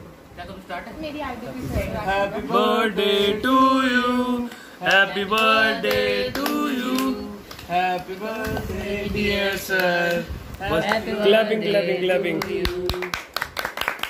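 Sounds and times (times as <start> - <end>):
voices singing slow melody: 2.0 - 13.1.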